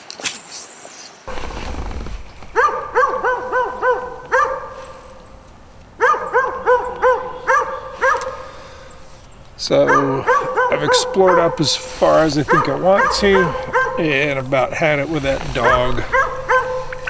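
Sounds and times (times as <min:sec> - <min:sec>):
dog barking: 0:02.6 - 0:05.2, 0:06.0 - 0:08.6, 0:09.8 - 0:14.3, 0:15.6 - 0:17.0.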